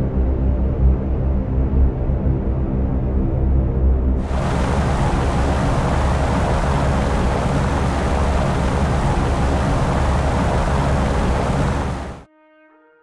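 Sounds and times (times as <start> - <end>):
piston aircraft engines droning: 4.2 - 12.2.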